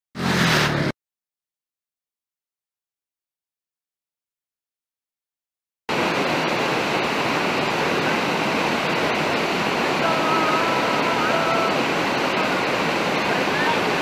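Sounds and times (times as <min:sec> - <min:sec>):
waterfall pouring over rocks: 0:05.9 - 0:14.0.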